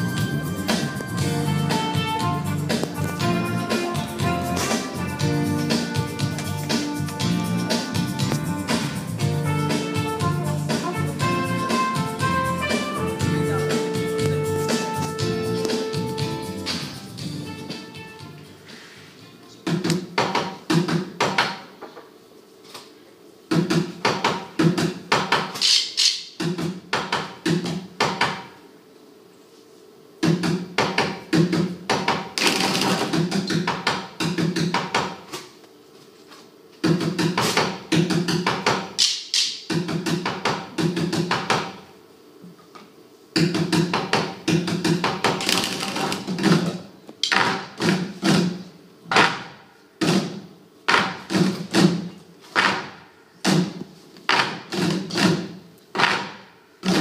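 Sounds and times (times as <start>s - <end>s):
children drumming on plastic buckets: 50.0s - 52.9s, 53.5s - 57.0s.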